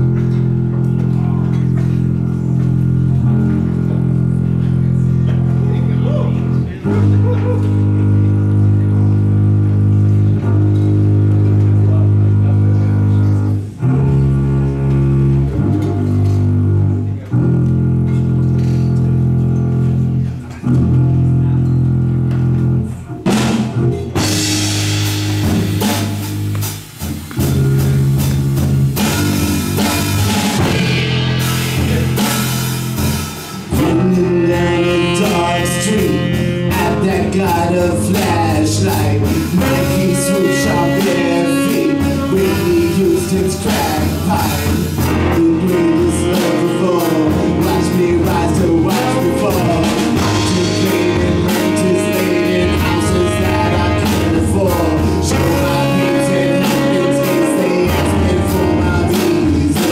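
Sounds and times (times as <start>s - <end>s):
double bass: 0.0s - 59.9s
drums and cymbals: 0.0s - 59.9s
piano chords: 28.4s - 59.9s.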